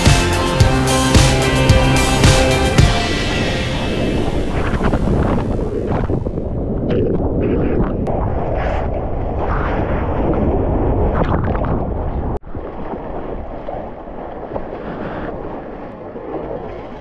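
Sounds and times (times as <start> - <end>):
breaking surf rushing: 0.0 - 6.6
wind buffeting microphone: 2.3 - 17.0
water sloshing and splashing: 11.0 - 17.0.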